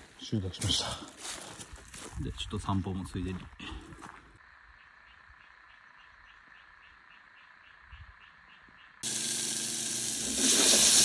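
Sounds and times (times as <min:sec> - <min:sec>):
frogs calling: 0:04.4 - 0:09.4
water boiling in saucepan: 0:09.0 - 0:11.0.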